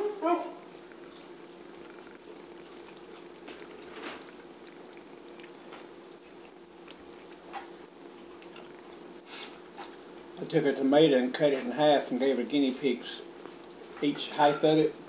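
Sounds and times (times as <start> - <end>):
steady low hum: 0.0 - 15.0
people chewing: 0.5 - 10.4, 13.4 - 14.6.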